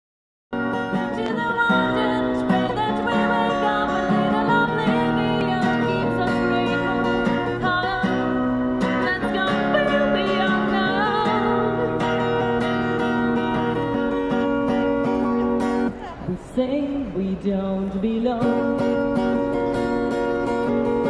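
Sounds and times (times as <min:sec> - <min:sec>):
acoustic guitar strumming: 0:00.6 - 0:16.0, 0:16.6 - 0:21.0
woman singing: 0:00.9 - 0:12.1, 0:16.3 - 0:19.0.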